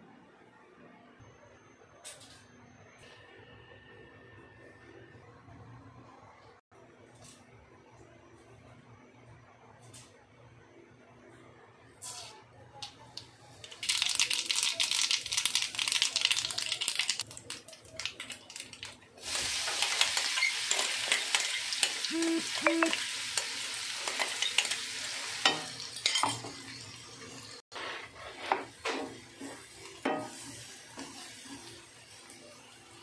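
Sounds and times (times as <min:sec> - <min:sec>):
seeds crackling in hot oil: 0:12.1 - 0:33.0
paste sizzling in oil: 0:19.2 - 0:32.5
wooden spatula scraping pan: 0:27.7 - 0:31.7.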